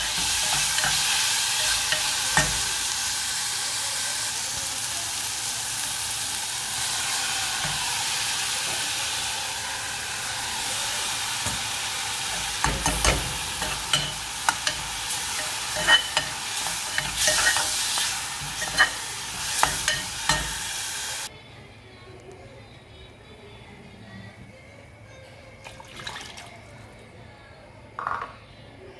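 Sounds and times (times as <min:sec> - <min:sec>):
steel spoon scraping a pot: 0:00.0 - 0:02.8, 0:12.3 - 0:20.8
vegetables sizzling in oil: 0:00.0 - 0:21.3.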